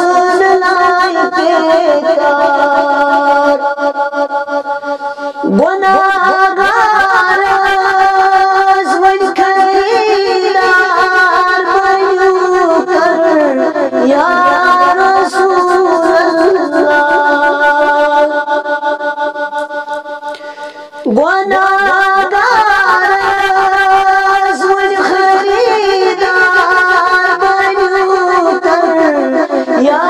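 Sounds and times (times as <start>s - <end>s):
man singing: 5.5s - 18.3s.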